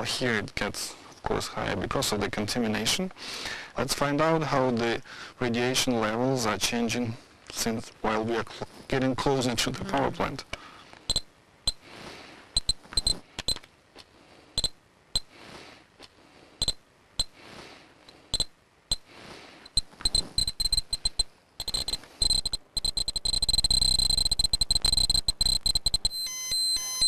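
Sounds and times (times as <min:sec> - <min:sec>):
steady high alarm beep: 0:12.6 - 0:13.2, 0:16.6 - 0:17.3, 0:18.3 - 0:19.0, 0:19.7 - 0:27.0
geiger counter clicking: 0:12.6 - 0:13.7, 0:14.6 - 0:15.3, 0:16.6 - 0:17.3, 0:18.3 - 0:19.0, 0:19.6 - 0:27.0.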